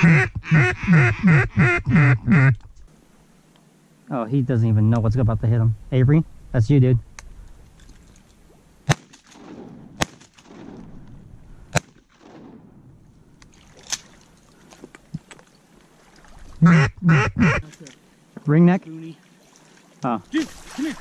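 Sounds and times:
shotgun shots with echo: 8.9 - 10.9.

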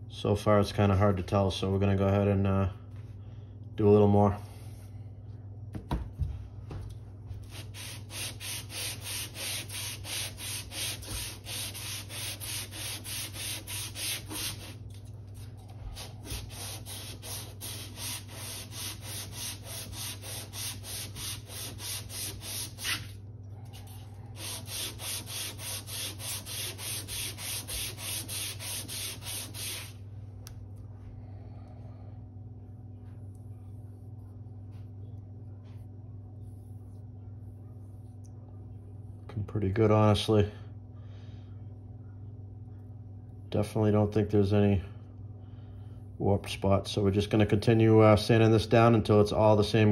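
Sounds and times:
metal sanding on sandpaper strokes: 7.5 - 14.8, 16.0 - 23.1, 24.4 - 30.0.

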